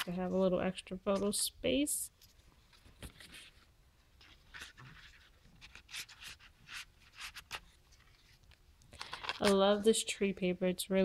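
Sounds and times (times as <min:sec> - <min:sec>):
paper rustling and scraping: 0:02.3 - 0:09.6.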